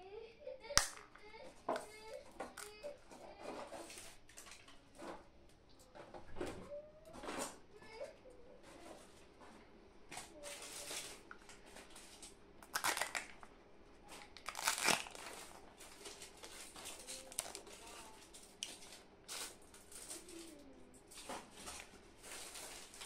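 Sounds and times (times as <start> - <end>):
plastic crinkling and crackling: 0.8 - 5.2, 10.1 - 23.0.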